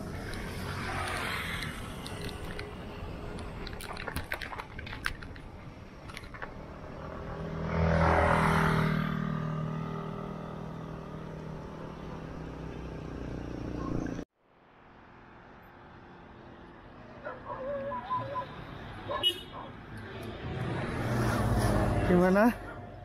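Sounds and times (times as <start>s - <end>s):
road and wind noise: 0.0s - 23.0s
vehicle engine passing: 6.8s - 14.2s, 20.0s - 23.0s.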